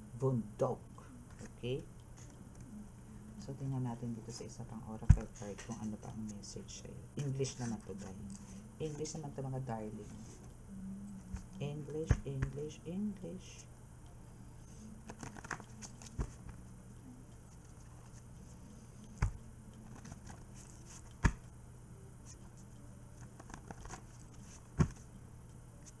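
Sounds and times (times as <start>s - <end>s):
low steady hum: 0.0s - 26.0s
paper rustling and crinkling: 15.0s - 16.6s, 19.2s - 21.1s, 23.2s - 25.0s.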